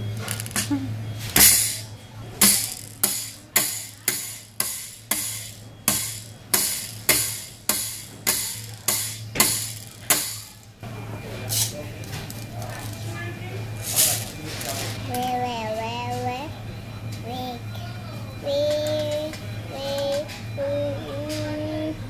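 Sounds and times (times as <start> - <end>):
pin art toy pins clattering: 2.4 - 10.7, 13.8 - 15.0.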